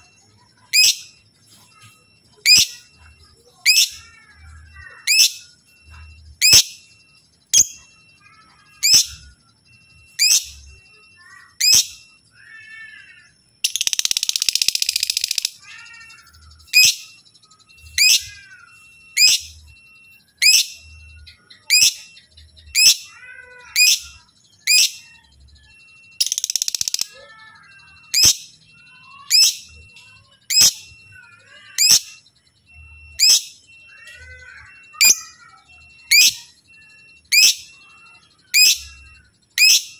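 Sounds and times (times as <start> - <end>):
bird shrill chirps: 0.0 - 19.7, 20.3 - 39.9
bird chattering: 20.4 - 39.9
bird rasping trill: 26.0 - 39.9.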